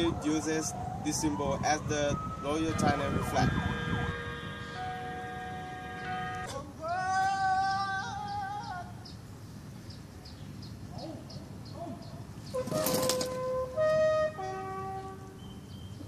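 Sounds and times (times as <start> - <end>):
bugle call: 2.6 - 6.6, 12.6 - 15.4.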